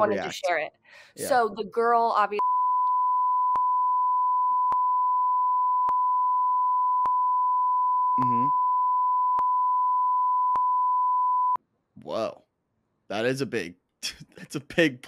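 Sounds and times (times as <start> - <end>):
person speaking: 0.0 - 2.3, 8.2 - 8.5, 12.0 - 12.4, 13.1 - 15.0
high beep tone: 2.4 - 11.6.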